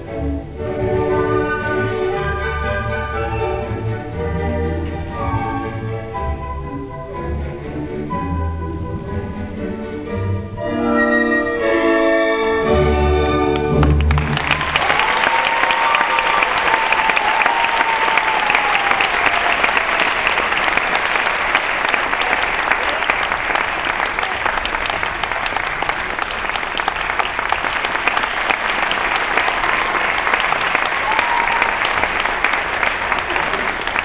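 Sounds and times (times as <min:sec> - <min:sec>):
orchestral music: 0:00.0 - 0:15.1
audience applauding: 0:13.6 - 0:34.0.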